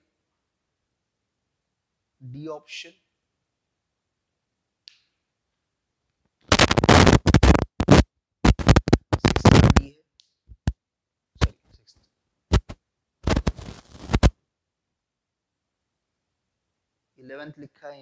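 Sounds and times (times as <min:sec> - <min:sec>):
marker scraping on whiteboard: 0:12.5 - 0:14.3.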